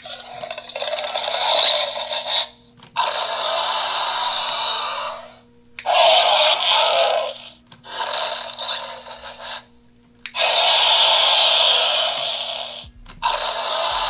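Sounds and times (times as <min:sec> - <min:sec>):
toy speaker dinosaur roars: 0:00.0 - 0:09.6, 0:10.3 - 0:14.0.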